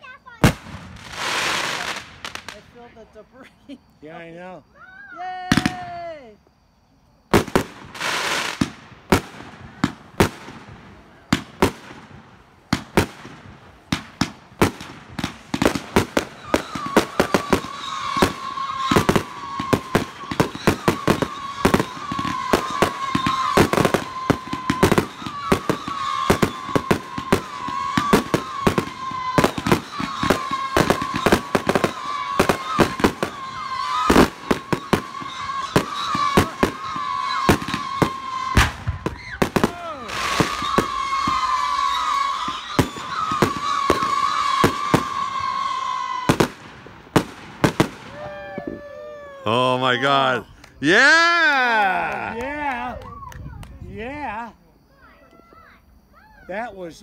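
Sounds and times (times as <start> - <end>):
firework launches and bursts: 0.2 - 2.6, 7.3 - 49.2
wavering firework whistle: 12.7 - 53.7.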